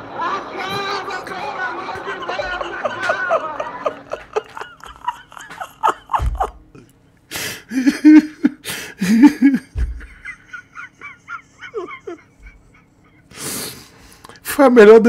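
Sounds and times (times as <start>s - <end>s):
man laughing hard: 1.8s - 13.4s
low thumps: 6.1s - 6.8s, 9.6s - 10.3s.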